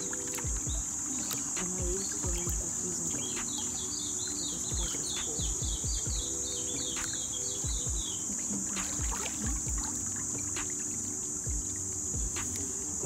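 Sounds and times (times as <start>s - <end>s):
bird chirping rapidly: 0.0s - 12.7s
insect drone: 0.0s - 13.0s
low thumps: 4.7s - 10.8s.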